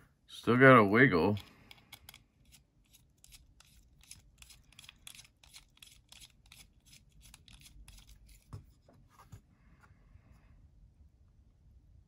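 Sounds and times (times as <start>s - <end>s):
screwdriver clicking on screws: 1.4s - 8.2s.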